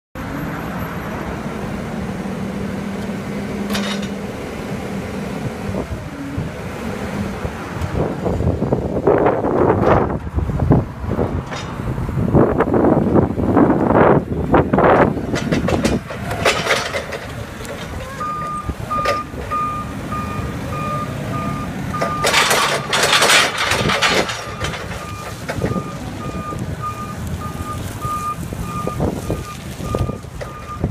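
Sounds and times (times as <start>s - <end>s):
forklift engine running: 0.2s - 30.9s
hydraulics lifting: 1.0s - 30.9s
reversing alarm beeping: 18.2s - 23.0s, 24.4s - 30.9s.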